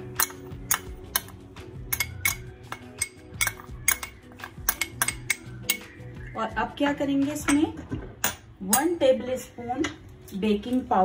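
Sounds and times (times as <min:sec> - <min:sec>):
metal spoon clinking in glass bowl: 0:01.9 - 0:05.9.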